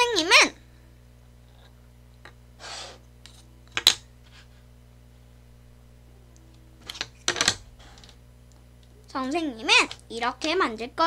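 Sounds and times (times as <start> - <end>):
puzzle pieces scraping on table: 6.8 - 8.2.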